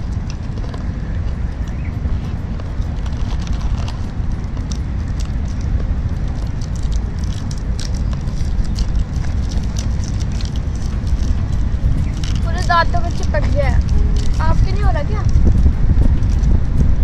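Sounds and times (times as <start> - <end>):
steady low rumble: 0.0 - 17.0
plastic wrappers crinkling: 2.7 - 15.5.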